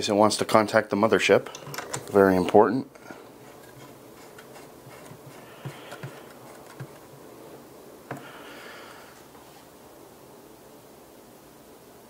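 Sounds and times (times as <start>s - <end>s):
handling noise: 1.4s - 9.8s.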